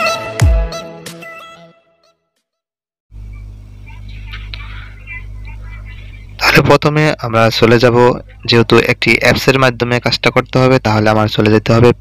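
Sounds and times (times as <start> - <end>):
low electrical hum: 3.1 - 12.0.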